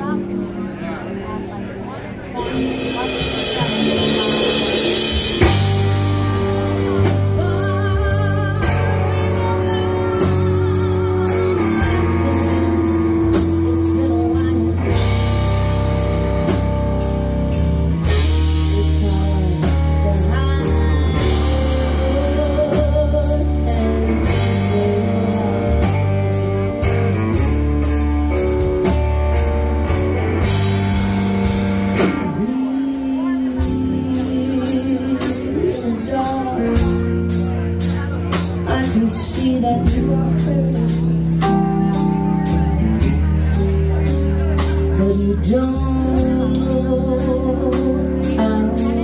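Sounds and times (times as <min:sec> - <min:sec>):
bass guitar: 0:00.0 - 0:49.0
electric guitar: 0:00.0 - 0:49.0
keyboard: 0:00.0 - 0:49.0
drum kit: 0:02.3 - 0:49.0
woman singing: 0:05.4 - 0:15.4, 0:18.2 - 0:26.3, 0:32.2 - 0:37.3, 0:38.6 - 0:42.6, 0:44.9 - 0:49.0.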